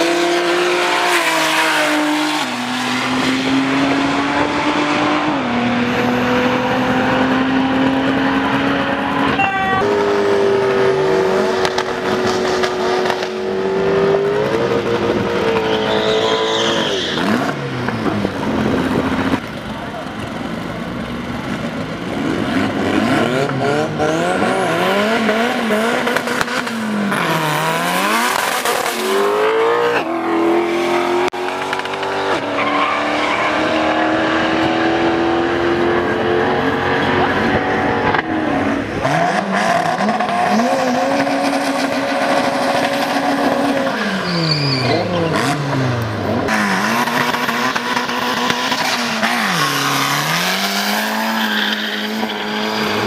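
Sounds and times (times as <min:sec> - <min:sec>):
racing car engines revving: 0:00.0 - 0:53.0
tyres squealing: 0:15.6 - 0:17.6, 0:43.8 - 0:45.6.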